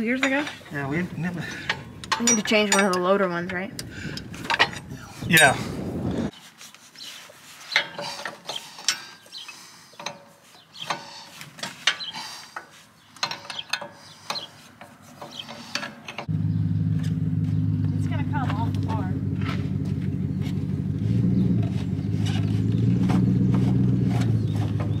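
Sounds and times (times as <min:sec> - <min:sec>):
wrench clinking and scraping: 0:01.5 - 0:03.3, 0:07.7 - 0:16.3
engine idling: 0:16.3 - 0:25.0.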